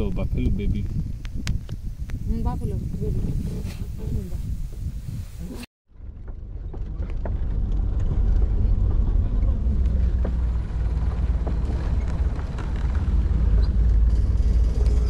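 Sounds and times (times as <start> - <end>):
jeep engine rumble: 1.8 - 15.0.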